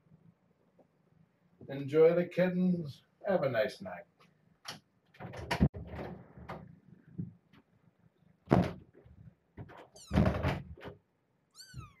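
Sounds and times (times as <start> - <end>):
dull thumps: 8.5 - 10.9
kitten mewing: 11.5 - 12.0.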